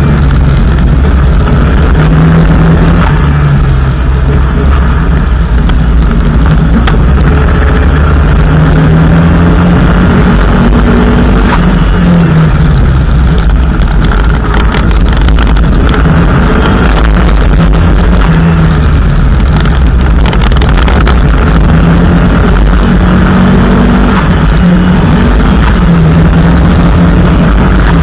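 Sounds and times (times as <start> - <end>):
rally car engine running hard: 0.0 - 28.0
stones clicking against car: 13.3 - 22.0.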